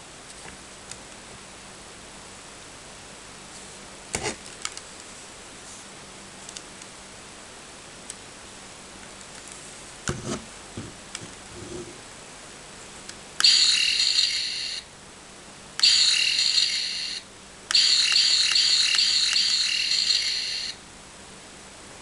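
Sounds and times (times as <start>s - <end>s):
toy gun warbling zap effect: 13.4s - 14.9s, 15.8s - 20.8s.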